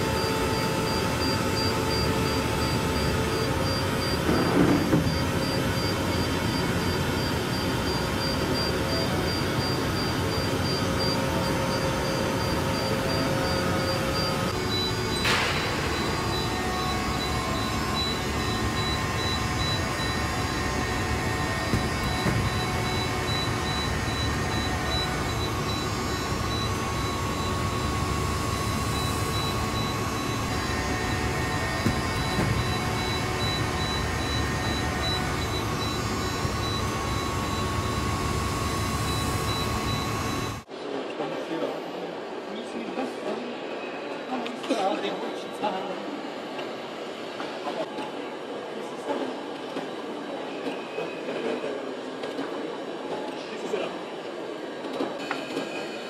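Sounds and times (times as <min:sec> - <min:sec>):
machine mechanical noise: 0:00.0 - 0:41.0.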